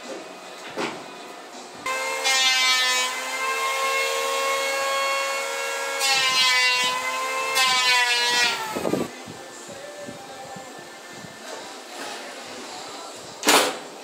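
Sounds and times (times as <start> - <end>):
power saw cutting wood: 1.8 - 9.1.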